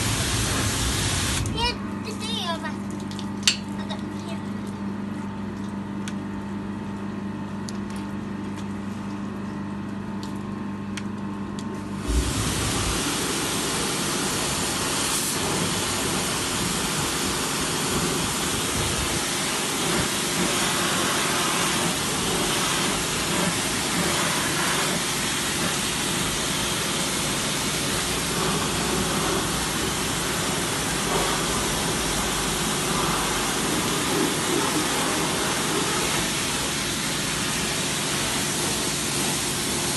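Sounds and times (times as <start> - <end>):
pressure washer spraying metal: 0.0 - 1.7, 12.0 - 39.9
steady low hum: 11.8 - 14.6, 21.5 - 37.1.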